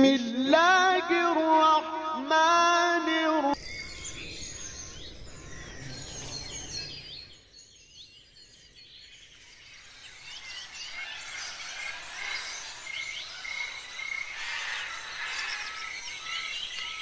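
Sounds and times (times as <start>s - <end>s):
birds chirping: 3.6s - 17.0s.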